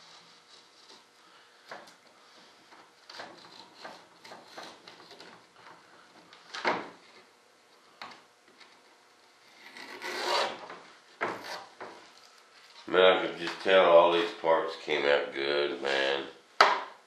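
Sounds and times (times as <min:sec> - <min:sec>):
hand tool scraping foam: 0:00.0 - 0:01.1, 0:09.4 - 0:10.7.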